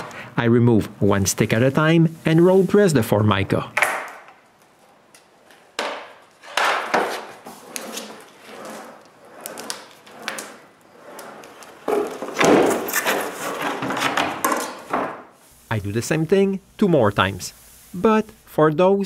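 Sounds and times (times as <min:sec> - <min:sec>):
roller rolling over laminate sheet: 0:04.6 - 0:15.2.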